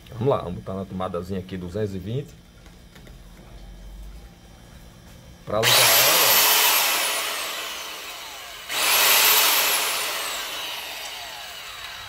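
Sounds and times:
saw motor whining: 5.6s - 12.0s.

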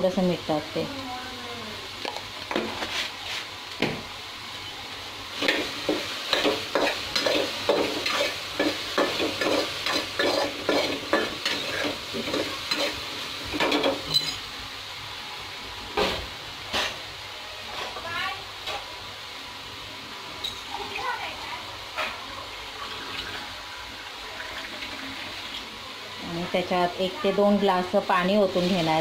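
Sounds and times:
food sizzling in oil: 0.0s - 29.0s
spatula scraping a pan: 5.4s - 14.5s.

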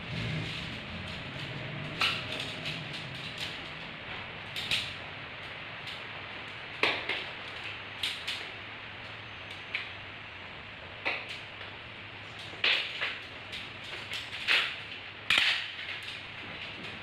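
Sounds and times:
tent pole sections clicking together: 0.2s - 3.9s, 4.5s - 4.9s, 12.4s - 16.2s.

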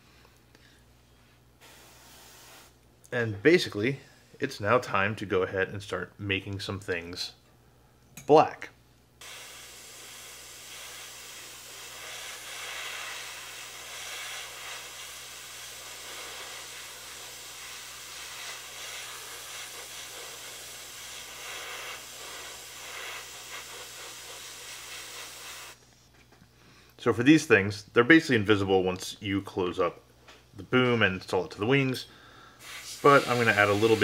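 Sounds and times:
airbrush hissing: 1.6s - 2.8s, 9.2s - 25.9s, 32.6s - 34.0s.

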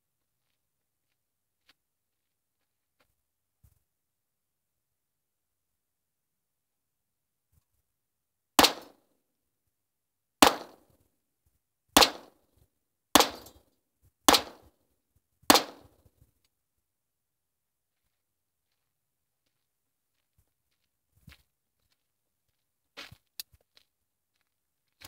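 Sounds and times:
pistol shots: 8.6s - 9.0s, 10.4s - 10.8s, 12.0s - 12.4s, 13.2s - 13.6s, 14.3s - 14.7s, 15.5s - 15.9s.

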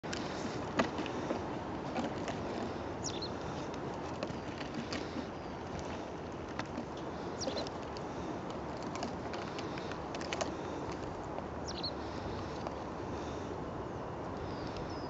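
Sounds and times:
outdoor background rush: 0.0s - 15.0s
small bird chirping: 3.0s - 3.4s, 7.3s - 7.7s, 11.6s - 12.1s.

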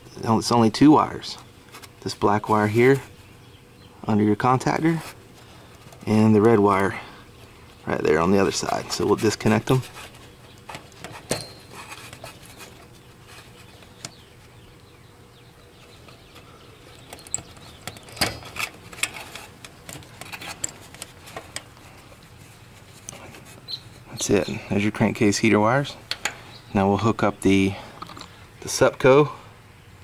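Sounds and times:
faint steady hum: 0.0s - 30.0s
clicks and knocks of wire terminals: 16.9s - 21.7s.

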